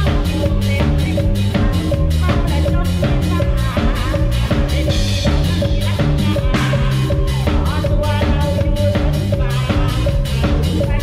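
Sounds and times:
drum kit playing steady beat: 0.0s - 11.0s
live band music: 0.0s - 11.0s.

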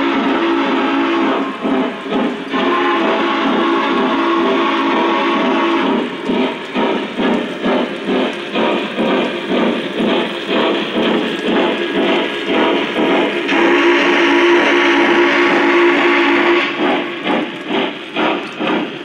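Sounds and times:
rhythmic steam chuffing: 0.0s - 19.0s
steam whistle chord: 2.5s - 6.0s, 13.5s - 16.8s.

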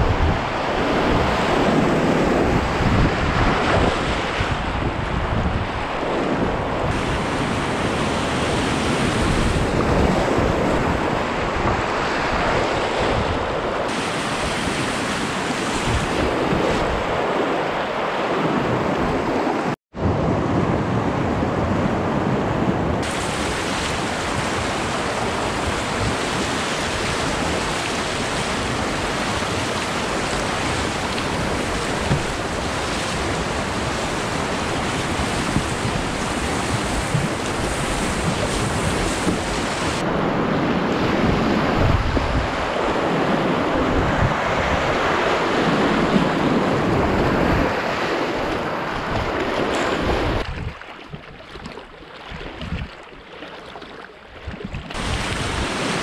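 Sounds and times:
wind buffeting microphone: 0.0s - 53.0s, 54.4s - 56.0s
whitewater rushing: 6.8s - 18.8s, 23.0s - 40.2s, 54.9s - 56.0s.

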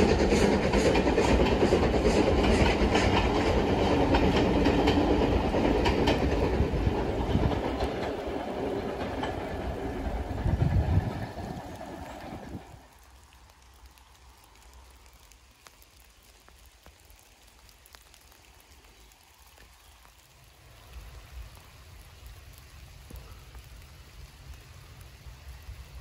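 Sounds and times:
faint steady hiss: 1.7s - 26.0s
light ticks: 12.9s - 25.1s.

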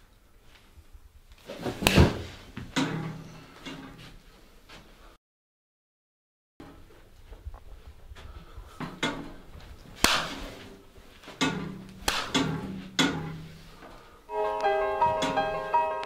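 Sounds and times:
punches landing: 1.6s - 3.1s, 10.0s - 10.6s, 11.4s - 13.4s
slow piano melody: 14.3s - 16.0s.

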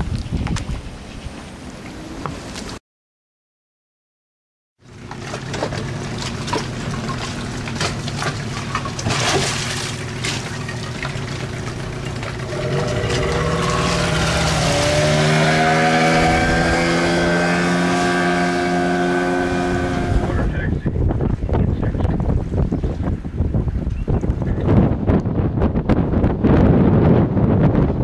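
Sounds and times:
wind: 0.0s - 2.8s, 4.8s - 28.0s
boat engine running: 4.8s - 27.9s
water noise: 4.8s - 27.9s.

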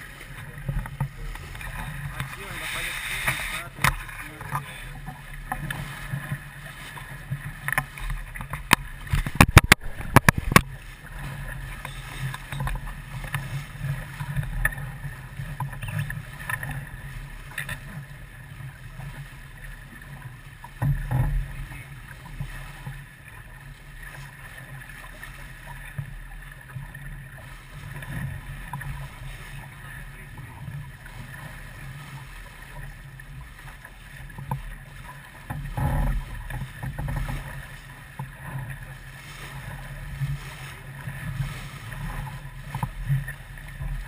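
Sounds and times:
rush of water and wind: 0.0s - 44.0s
sharp knocks: 8.6s - 10.7s.

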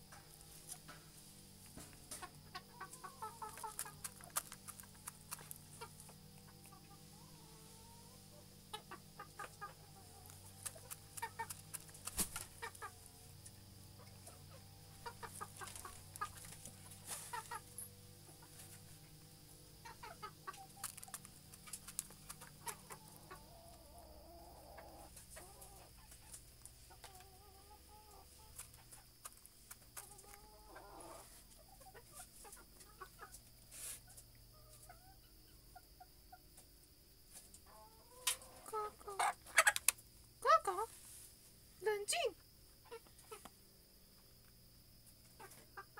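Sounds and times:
rooster clucking: 2.1s - 13.1s, 13.9s - 18.6s, 19.8s - 21.4s, 22.0s - 26.3s.

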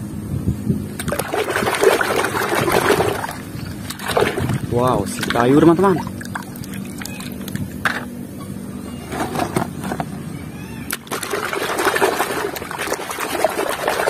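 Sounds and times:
hand sloshing water in basin: 1.0s - 7.6s, 10.9s - 14.0s.

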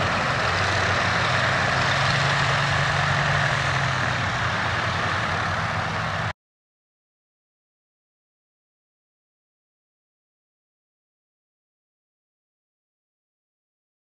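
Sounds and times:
aircraft engine low drone: 0.0s - 6.3s.

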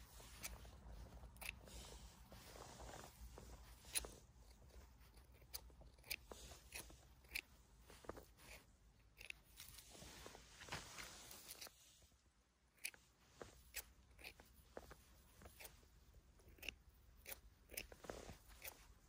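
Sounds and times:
scissors snipping: 0.1s - 2.1s, 3.1s - 9.8s, 12.7s - 19.0s.

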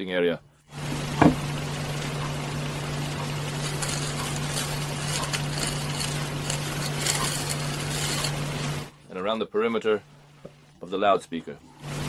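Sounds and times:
low hum: 0.6s - 9.1s
glue brush scratching plastic: 3.5s - 8.9s.

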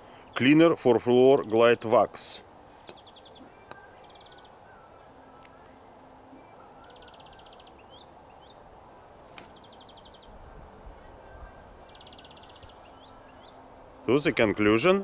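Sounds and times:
songbirds chirping: 0.0s - 15.0s
bird trills: 2.5s - 13.7s.

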